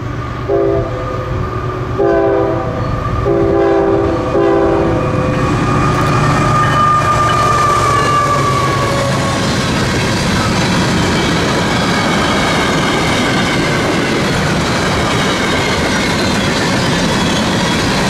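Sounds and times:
passing train rumble: 0.0 - 18.0
locomotive air horn blasts: 0.5 - 1.2, 2.0 - 5.0
high tone falling in pitch: 4.8 - 9.4.

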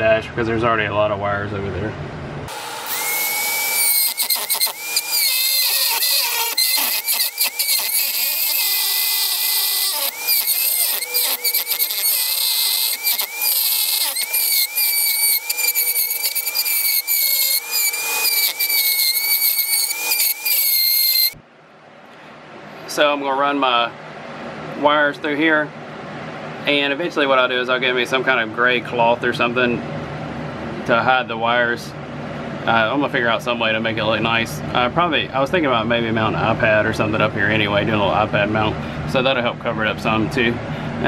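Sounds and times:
rotary tool whining and grinding: 2.5 - 21.4.

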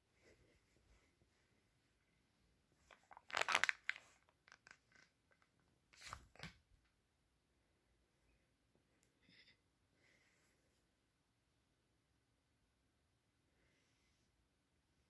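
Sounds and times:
foil pouch crinkling: 2.9 - 5.5.

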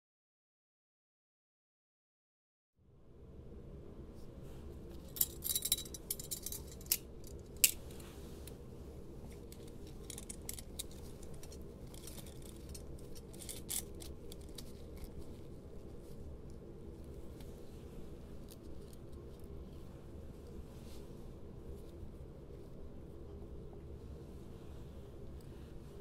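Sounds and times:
steady low hum: 2.8 - 26.0
metallic clicks and clinks: 5.0 - 7.8, 9.5 - 15.1.

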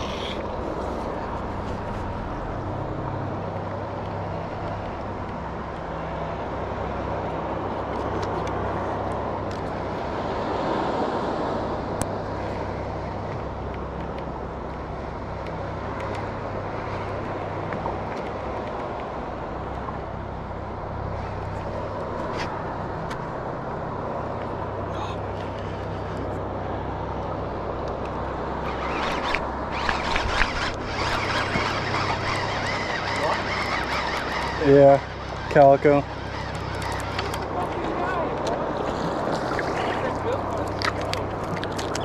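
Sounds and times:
boat motor humming: 0.0 - 42.0
faint clicks: 36.2 - 37.8.

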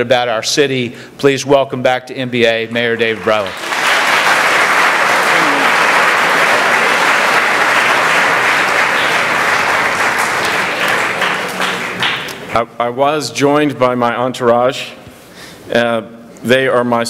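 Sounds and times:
audience applauding: 3.0 - 12.6.

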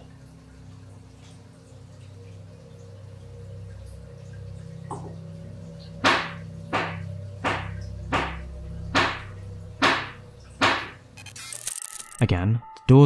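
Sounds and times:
low steady hum: 0.0 - 12.1
sharp ringing knocks: 5.8 - 11.1.

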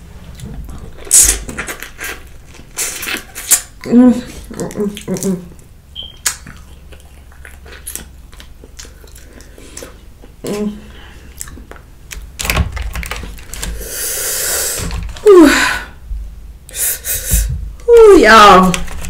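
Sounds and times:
hissing breath through mouth: 13.8 - 14.9, 16.7 - 17.6.

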